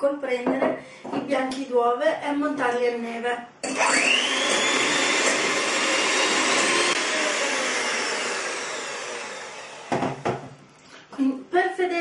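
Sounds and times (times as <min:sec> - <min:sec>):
electric hand mixer whining: 0:03.6 - 0:10.5.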